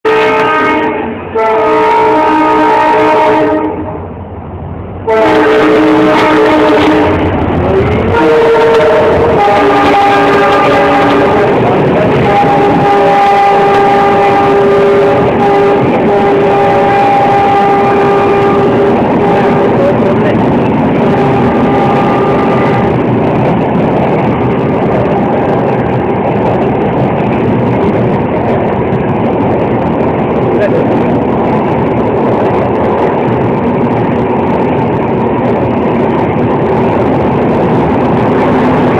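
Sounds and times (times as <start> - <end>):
train coaches rumbling past: 0.0 - 38.9
locomotive air horn blasts: 0.1 - 4.0, 5.1 - 20.0, 21.0 - 23.0.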